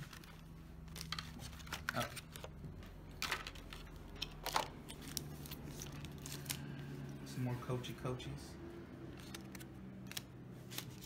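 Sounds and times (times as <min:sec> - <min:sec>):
cards clicking and snapping: 0:09.1 - 0:11.0.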